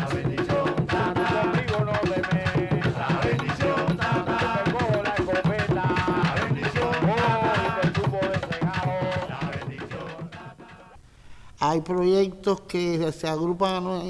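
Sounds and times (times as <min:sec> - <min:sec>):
conga drums playing: 0:00.0 - 0:11.0
voices singing: 0:00.0 - 0:11.0.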